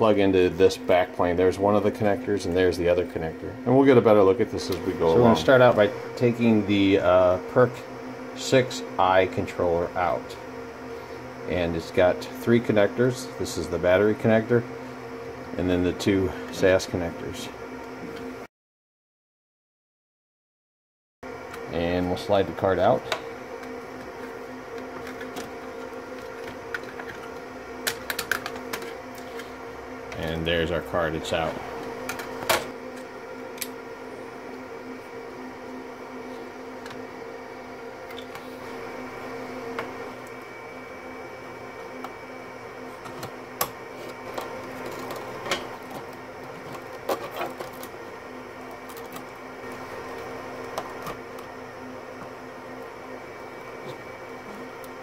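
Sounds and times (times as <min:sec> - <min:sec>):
steady hum: 0:00.0 - 0:18.5, 0:21.2 - 0:55.0
cables and plastic parts clicking: 0:26.2 - 0:29.5.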